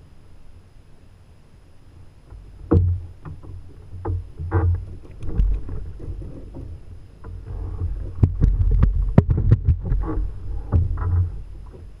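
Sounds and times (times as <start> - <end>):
low uneven rumble: 0.0 - 12.0
sharp knocks on kayak: 2.3 - 11.9.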